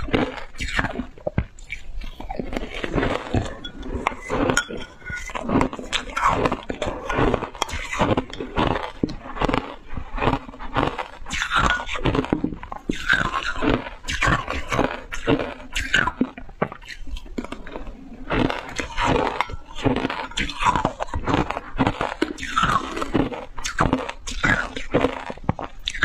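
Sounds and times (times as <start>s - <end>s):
ice crunching in mouth: 0.0s - 26.0s.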